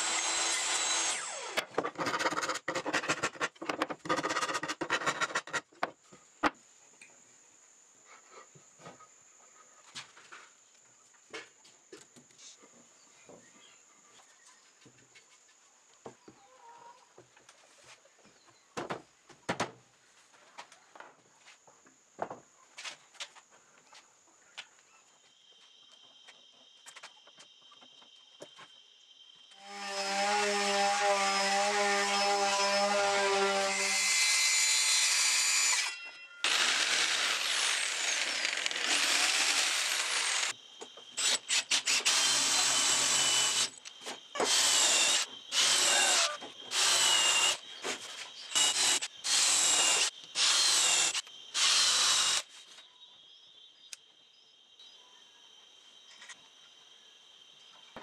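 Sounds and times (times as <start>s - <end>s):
electric drill boring holes: 0.0s - 3.0s, 29.6s - 40.5s, 41.2s - 43.8s, 44.4s - 47.6s, 48.5s - 52.5s
jigsaw cutting wood: 0.0s - 3.4s, 29.6s - 40.5s, 41.2s - 43.7s, 44.4s - 47.6s, 48.5s - 52.4s.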